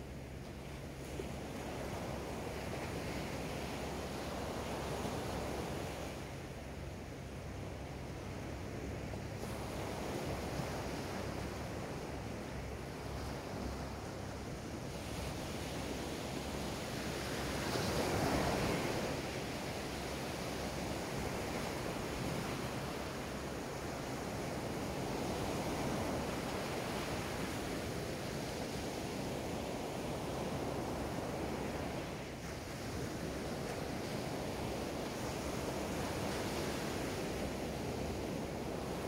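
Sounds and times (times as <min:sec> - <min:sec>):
small waves breaking on a beach: 0:00.0 - 0:39.0.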